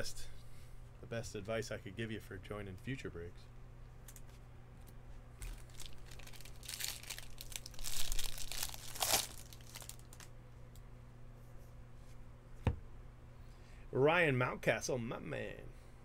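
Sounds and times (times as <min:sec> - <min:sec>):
wrapper crinkling: 0:05.4 - 0:10.3
wrapper ripping: 0:05.4 - 0:10.3.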